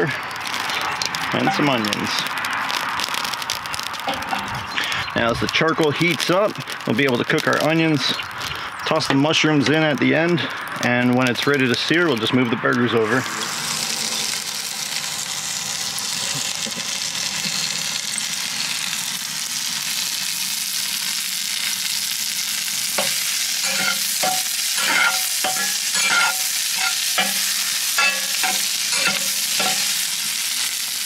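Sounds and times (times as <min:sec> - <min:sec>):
onions sizzling in butter: 0:00.0 - 0:09.1, 0:13.2 - 0:31.0
spatula scraping pan: 0:23.0 - 0:30.1.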